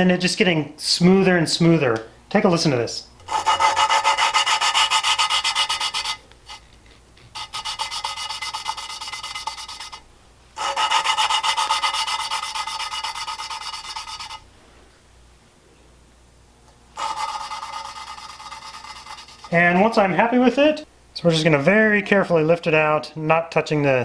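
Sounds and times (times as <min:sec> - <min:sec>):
valve lapping rasping grind: 0:03.2 - 0:10.0, 0:10.6 - 0:14.4, 0:16.9 - 0:20.0.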